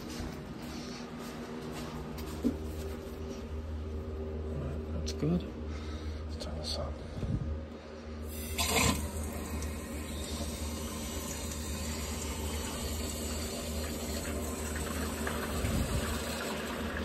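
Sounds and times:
water hissing through pipe: 0:08.2 - 0:17.0.

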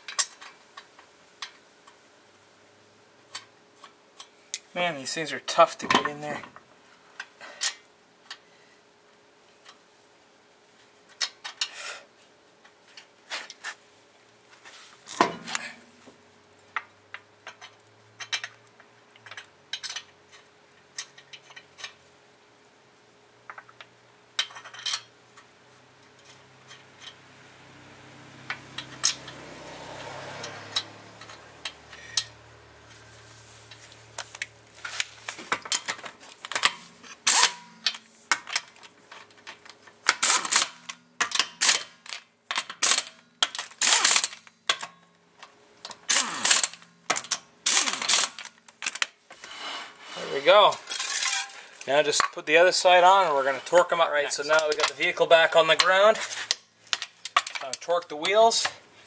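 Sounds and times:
metal lug nuts clinking: 0:17.5 - 0:18.6, 0:19.2 - 0:20.4, 0:24.4 - 0:25.5, 0:28.5 - 0:32.4, 0:33.7 - 0:45.0, 0:45.8 - 0:49.4, 0:54.4 - 0:58.8
ratchet clicking: 0:43.8 - 0:44.8.

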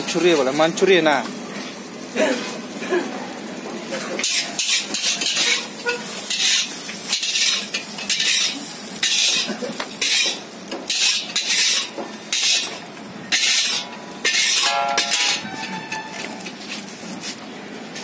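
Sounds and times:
noodles sizzling in oil: 0:00.0 - 0:18.0
metal ladle scraping a wok: 0:04.0 - 0:16.8.

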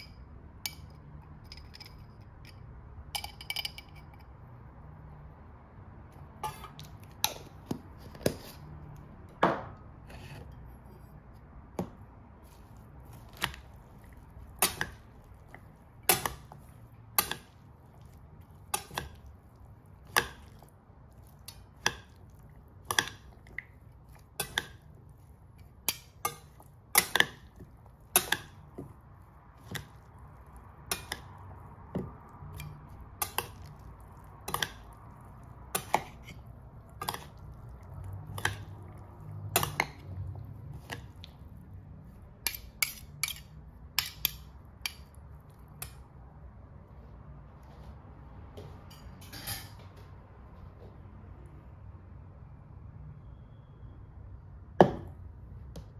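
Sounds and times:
metal spoon clinking in steel bowl: 0:00.0 - 0:04.4, 0:24.2 - 0:24.9, 0:25.8 - 0:28.6, 0:30.8 - 0:31.4, 0:42.4 - 0:45.2.

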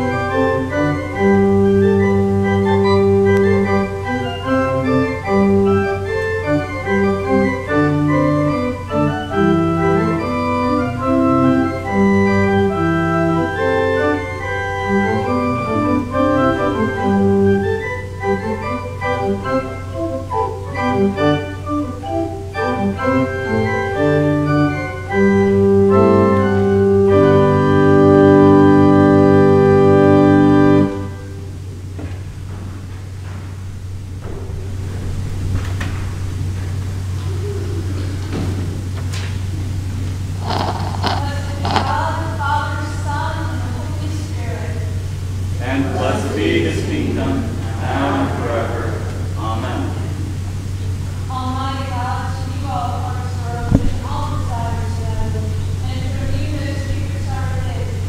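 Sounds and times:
church organ playing: 0:00.0 - 0:31.7, 0:44.9 - 0:51.2.

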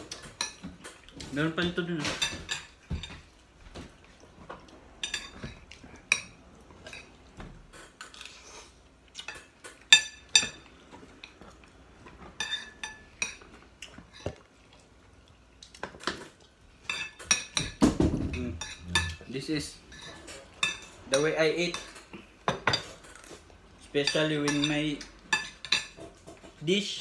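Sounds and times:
cutlery clinking on plates: 0:12.2 - 0:13.5, 0:15.8 - 0:19.3, 0:19.9 - 0:23.4, 0:24.0 - 0:27.0.

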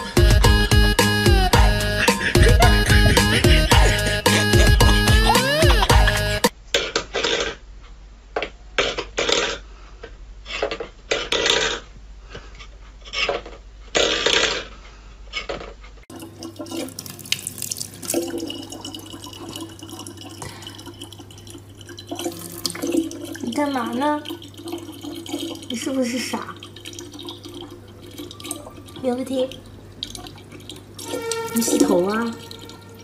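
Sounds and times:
tap running: 0:01.6 - 0:06.5.

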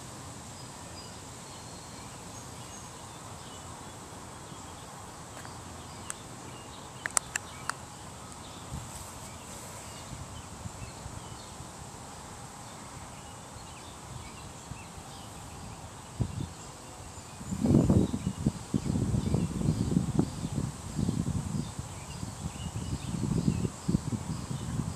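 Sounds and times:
faint steady hiss: 0:00.0 - 0:24.9
sharp clicks: 0:07.0 - 0:07.8.

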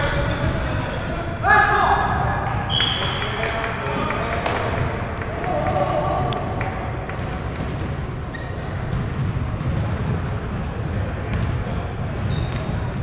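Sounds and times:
sneaker squeaks: 0:00.0 - 0:01.8, 0:02.6 - 0:06.3, 0:07.2 - 0:13.0
basketball bouncing on hardwood: 0:08.8 - 0:10.6, 0:11.3 - 0:11.6.

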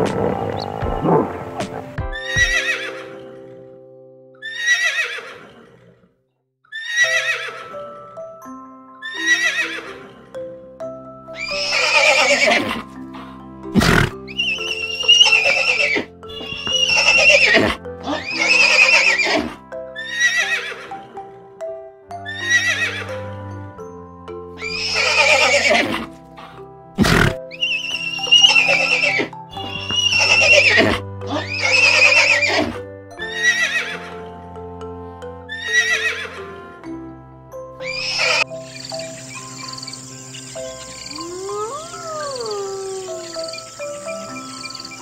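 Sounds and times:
horse whinnying: 0:00.0 - 0:03.2, 0:04.4 - 0:06.0, 0:06.7 - 0:07.8, 0:09.0 - 0:10.2, 0:11.4 - 0:12.9, 0:13.8 - 0:21.0, 0:22.2 - 0:23.1, 0:24.6 - 0:26.1, 0:27.0 - 0:34.2, 0:35.5 - 0:36.4, 0:37.8 - 0:38.6
background music of held notes: 0:00.0 - 0:04.8, 0:07.0 - 0:45.0.

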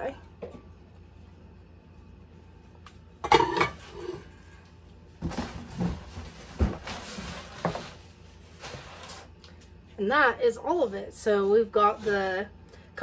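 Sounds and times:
cardboard box rustling and knocking: 0:05.2 - 0:08.0.

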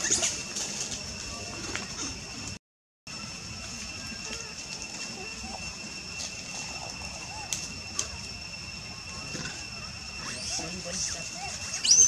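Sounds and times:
high-pitched insect drone: 0:00.0 - 0:12.0
rustling in dry leaves: 0:00.0 - 0:12.0
soft monkey calls: 0:03.9 - 0:12.0.

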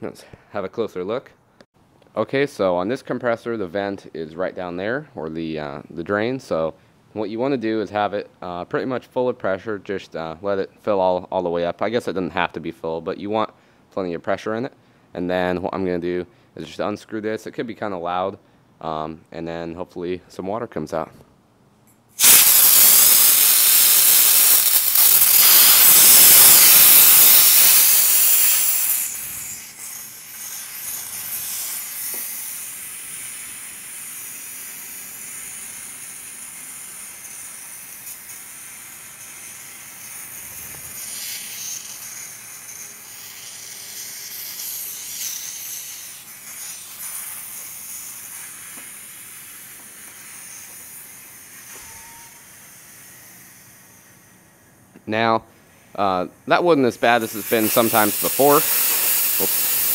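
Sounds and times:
compressed air hissing from valve: 0:22.2 - 0:54.8, 0:57.0 - 0:59.9.

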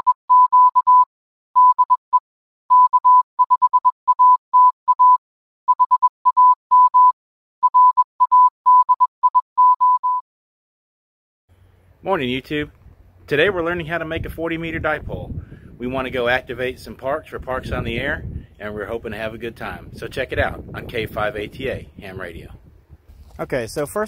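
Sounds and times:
morse code beeps: 0:00.0 - 0:10.2.

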